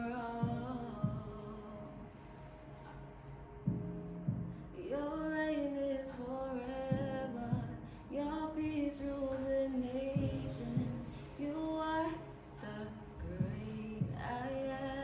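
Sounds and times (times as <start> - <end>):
woman singing worship song: 0.0 - 3.0, 3.7 - 15.0
low thumps in pairs: 10.2 - 11.1.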